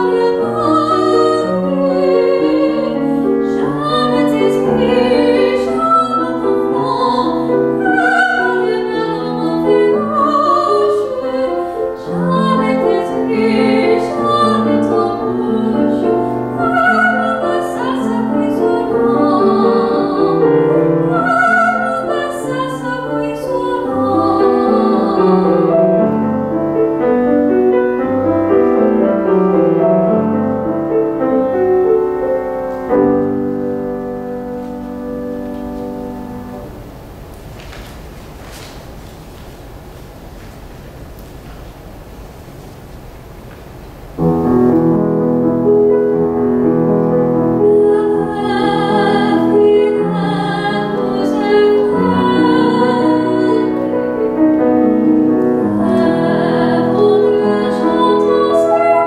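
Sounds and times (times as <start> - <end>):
woman singing operatically: 0.0 - 25.8, 47.6 - 54.1, 55.6 - 59.0
grand piano: 0.0 - 59.0.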